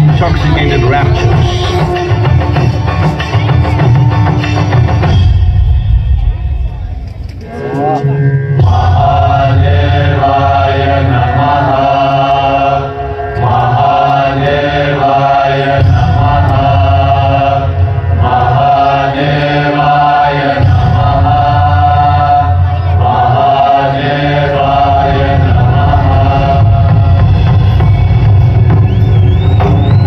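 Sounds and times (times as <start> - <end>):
deep steady drone: 0.0 - 19.2
voices chanting: 7.4 - 30.0.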